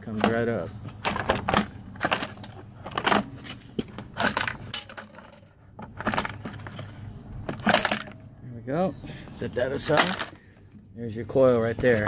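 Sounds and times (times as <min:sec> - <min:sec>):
plastic cover clicking and rattling: 0:00.2 - 0:08.2, 0:09.9 - 0:10.8.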